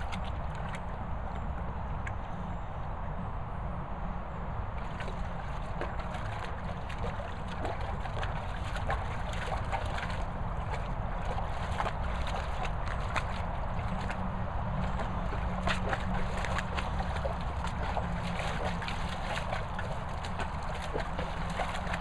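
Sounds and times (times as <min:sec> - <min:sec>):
steady low rumble: 0:00.0 - 0:22.0
dog splashing in water: 0:04.8 - 0:22.0.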